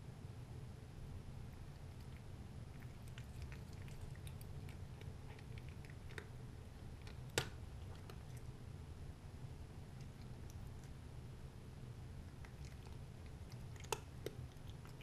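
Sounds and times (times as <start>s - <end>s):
steady low hum: 0.0s - 15.0s
cat crunching dry kibble: 1.6s - 8.5s, 12.3s - 15.0s.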